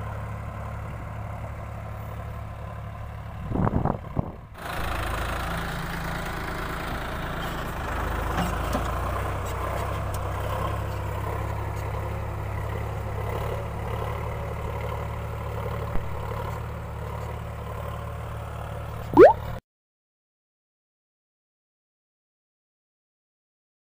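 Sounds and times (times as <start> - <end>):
tractor diesel engine under load: 0.0 - 19.1.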